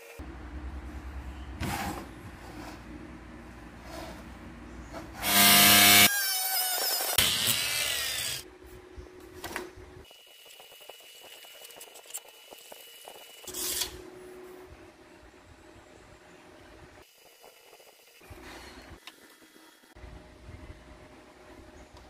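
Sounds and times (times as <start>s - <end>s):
small power tool whining: 5.2s - 8.4s.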